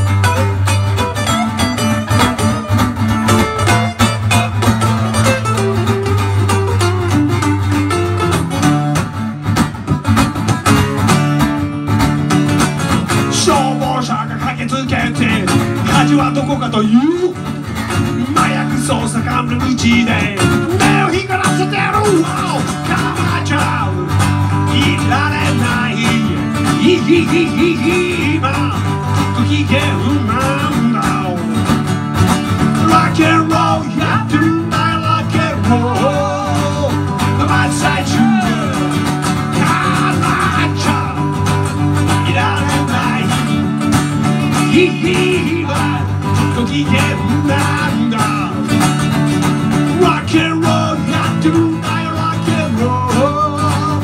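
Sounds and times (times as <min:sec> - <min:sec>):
acoustic guitar strumming: 0:00.0 - 0:54.0
lead guitar with bent notes: 0:00.0 - 0:54.0.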